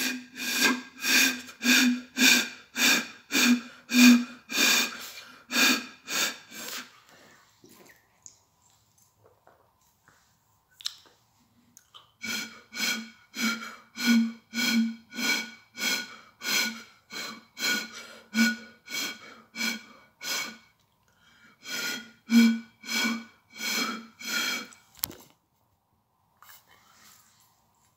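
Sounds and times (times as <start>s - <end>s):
hooting blown into a bottle: 22.3s - 24.0s.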